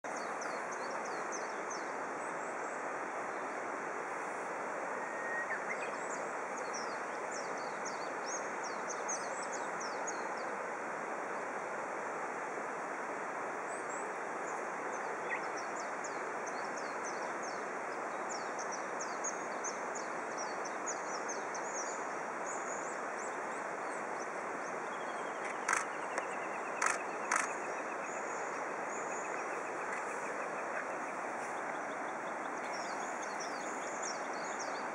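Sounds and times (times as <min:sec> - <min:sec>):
steady outdoor hiss: 0:00.0 - 0:34.9
small birds chirping: 0:18.2 - 0:34.9
sharp clicks: 0:25.5 - 0:27.6.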